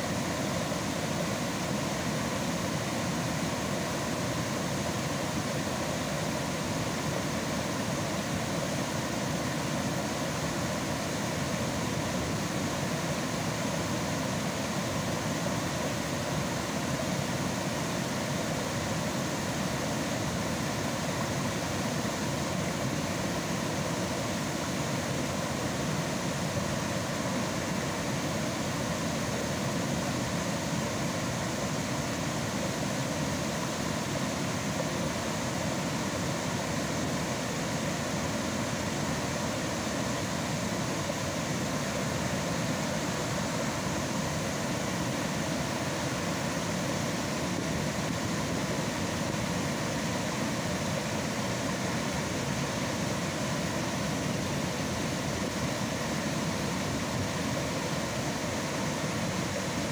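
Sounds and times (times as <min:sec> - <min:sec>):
water rushing over dam: 0:00.0 - 0:59.9.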